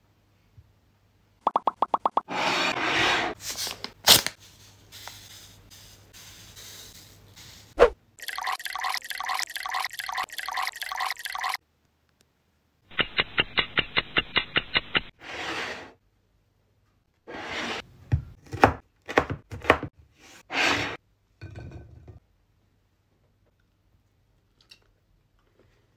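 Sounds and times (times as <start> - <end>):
knife swishes: 7.8 - 8.0.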